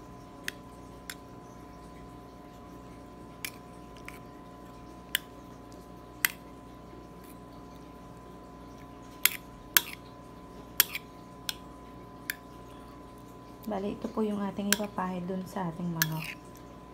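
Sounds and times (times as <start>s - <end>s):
steady hum: 0.0s - 16.9s
spoon stirring thick sauce: 7.2s - 12.4s, 14.6s - 16.9s
spoon clinking against dish: 16.0s - 16.4s.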